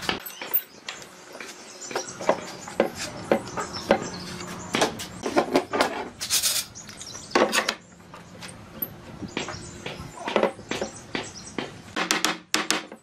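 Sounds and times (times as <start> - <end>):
short scraping hiss: 6.2 - 6.8.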